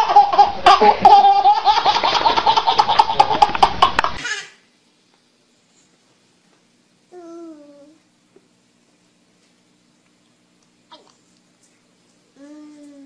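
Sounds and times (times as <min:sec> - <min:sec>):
small child laughing: 0:00.0 - 0:04.6.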